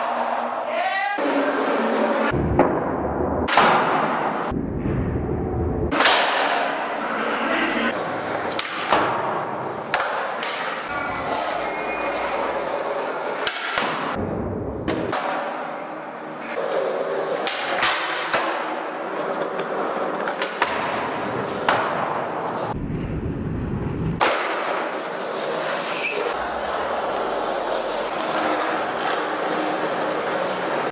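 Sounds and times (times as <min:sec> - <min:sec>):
skateboard wheels rolling on concrete: 0:05.9 - 0:30.9
skateboard tail cracks and landings: 0:24.2 - 0:24.9.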